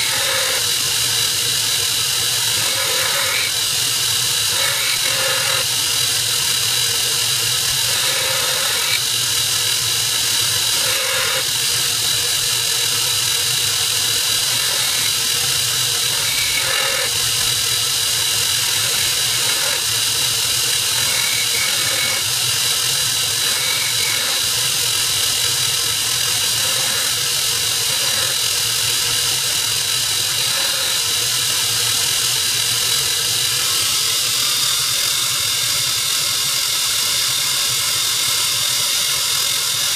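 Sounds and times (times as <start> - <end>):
belt grinder whining: 0.0 - 39.9
knife blade grinding on belt: 2.5 - 3.6, 4.4 - 5.7, 7.8 - 9.0, 10.7 - 11.5, 14.3 - 17.7, 18.4 - 22.4, 23.2 - 24.6, 27.8 - 28.4.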